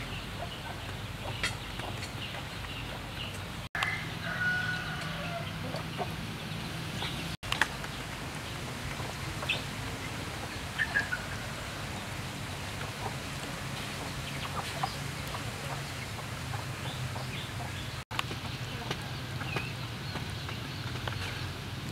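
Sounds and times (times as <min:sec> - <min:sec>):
chickens clucking: 0:00.0 - 0:21.9.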